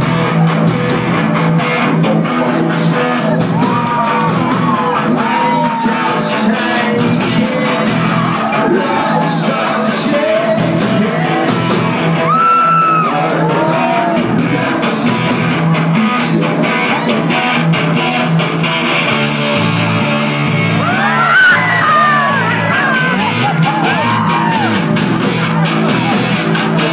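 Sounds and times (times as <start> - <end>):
rock band playing: 0.0 - 26.9
person singing over pa: 2.0 - 18.3.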